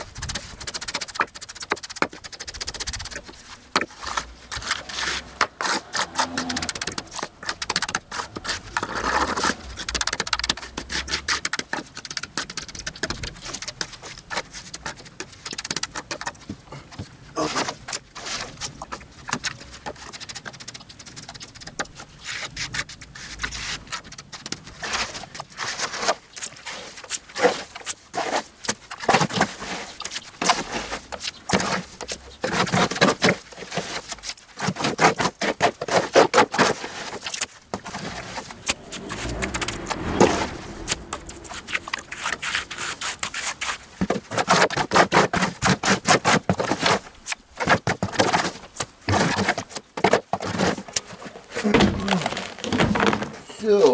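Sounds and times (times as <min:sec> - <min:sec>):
trowel scraping wet concrete: 0:00.3 - 0:11.8, 0:24.8 - 0:39.4.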